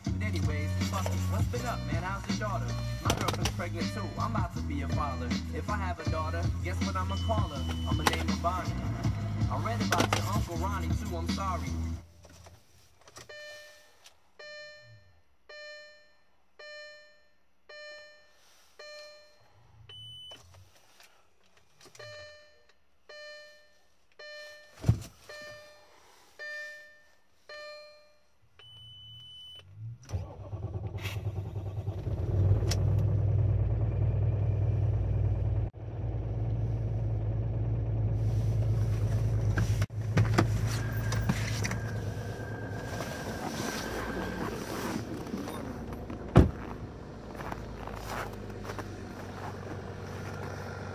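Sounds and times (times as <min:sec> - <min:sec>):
diesel engine cranking and idling: 0:00.0 - 0:11.9, 0:29.7 - 0:50.9
dashboard chime dinging: 0:06.9 - 0:08.4.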